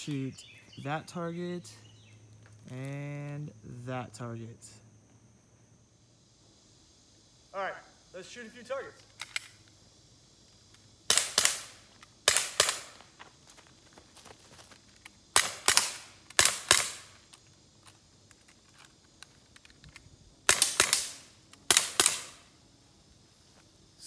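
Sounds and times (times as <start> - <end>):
pellet pistol shots: 11.1 - 13.0, 15.3 - 17.2, 20.4 - 22.5.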